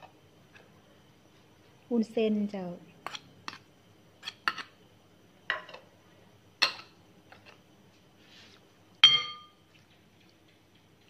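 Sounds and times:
metal spoon clinking against bowl: 9.0 - 9.6.

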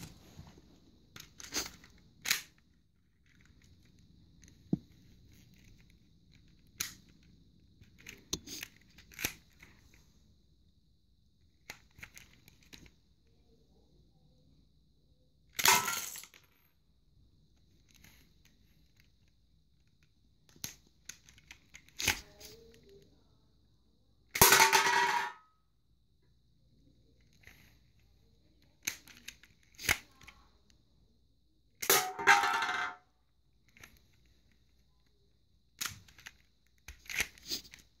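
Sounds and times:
can falling on wooden floor: 24.4 - 25.4, 31.9 - 33.0.

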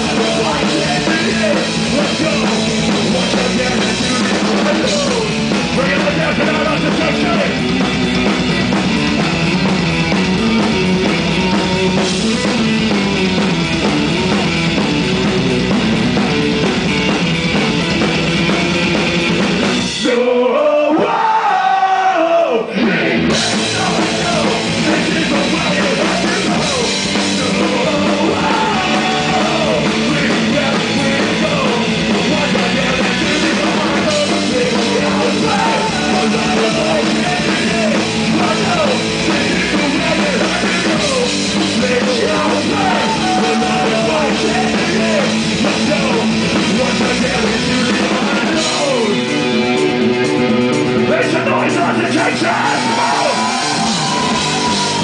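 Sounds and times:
punk rock band playing: 0.0 - 55.0.

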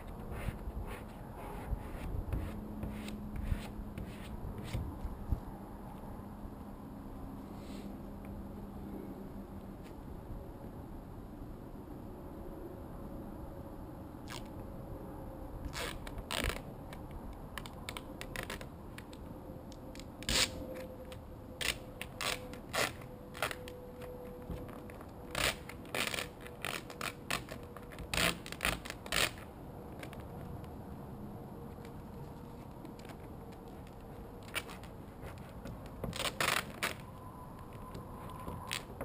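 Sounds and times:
squeegee scraping over vinyl: 0.0 - 4.9, 15.7 - 16.7, 20.2 - 20.9, 21.6 - 30.5, 31.8 - 39.0.

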